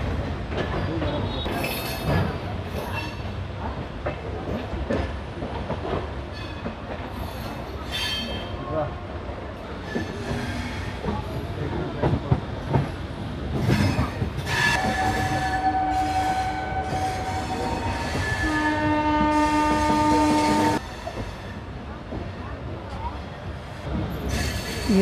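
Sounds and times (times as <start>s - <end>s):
train rumbling: 0.0s - 25.0s
multi-note train horn blasts: 14.8s - 20.8s.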